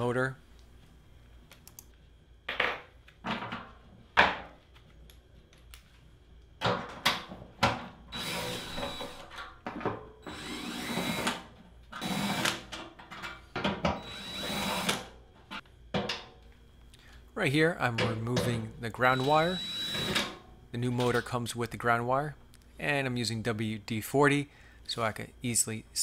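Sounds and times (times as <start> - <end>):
cordless drill running: 8.1 - 9.3, 10.2 - 11.4, 12.0 - 12.6, 14.0 - 15.0, 19.1 - 20.3.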